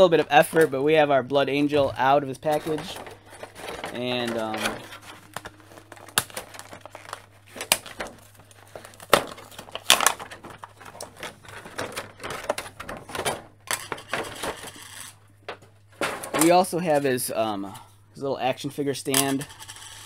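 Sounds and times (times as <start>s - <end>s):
plastic tray crinkling and snapping: 2.5s - 14.6s.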